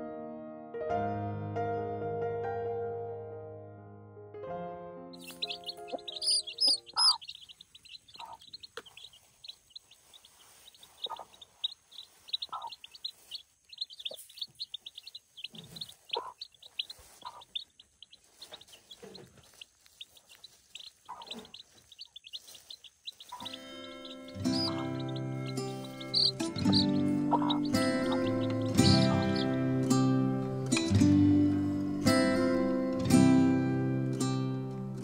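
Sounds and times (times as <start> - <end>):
small birds chirping: 5.2 - 32.7.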